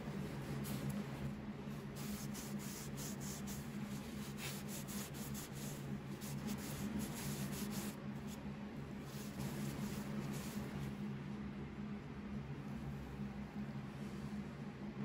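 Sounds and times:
paper towel wiping wood: 0:00.0 - 0:08.4, 0:09.0 - 0:10.9
steady low hum: 0:00.0 - 0:15.0.

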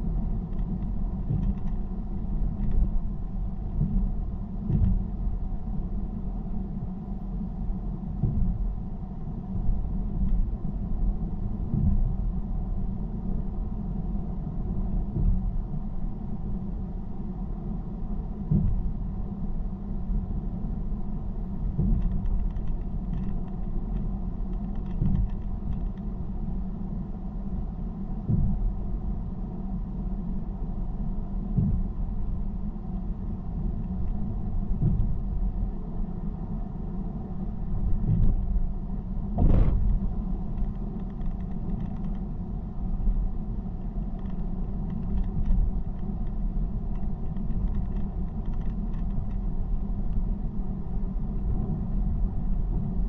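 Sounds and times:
road rumble: 0:00.0 - 0:53.0
low thumps: 0:39.3 - 0:40.3.

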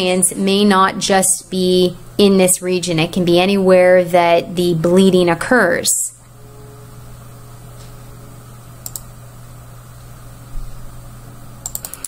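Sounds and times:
low electrical hum and hiss: 0:00.0 - 0:12.0
computer mouse clicks: 0:08.8 - 0:09.1, 0:11.6 - 0:12.0.

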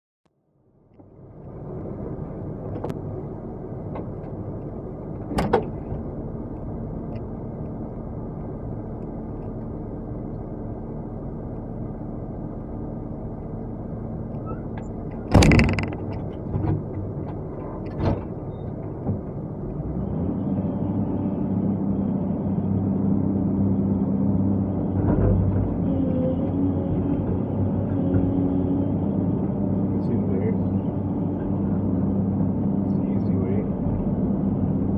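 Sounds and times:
knocks and clunks in cab: 0:05.2 - 0:06.1, 0:15.1 - 0:19.4.

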